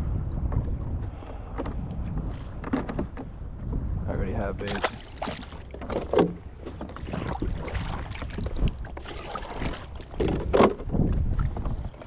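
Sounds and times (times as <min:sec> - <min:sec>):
wind rumble on microphone: 0:00.0 - 0:12.0
light water sounds: 0:04.6 - 0:12.0.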